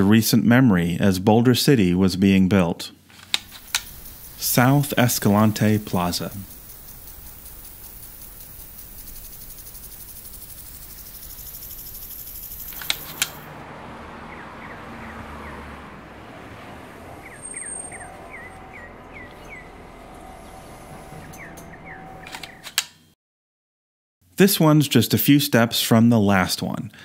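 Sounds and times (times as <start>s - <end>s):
sharp clicks: 3.2s - 13.4s, 21.3s - 23.0s
high hiss: 3.2s - 13.5s
small bird chirping: 3.4s - 13.5s, 17.2s - 19.7s, 21.3s - 22.7s.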